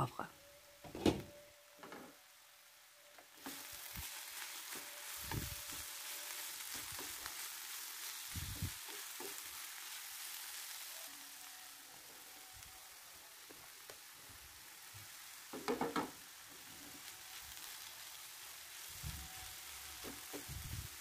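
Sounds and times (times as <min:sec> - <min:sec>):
vegetables sizzling in a frying pan: 0:00.0 - 0:21.0
wooden spatula stirring: 0:03.4 - 0:10.9.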